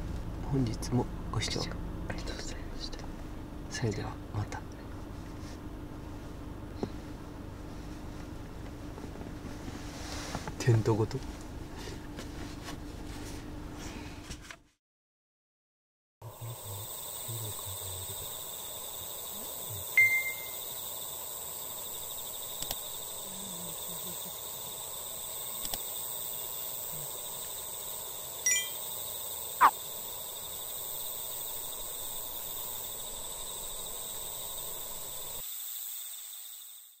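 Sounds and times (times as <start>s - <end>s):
steady background hiss: 16.2s - 36.3s
high chirps: 20.0s - 20.7s, 28.5s - 28.8s
steady high tones: 20.0s - 20.7s, 28.5s - 28.8s
faint clicks: 25.6s - 25.8s.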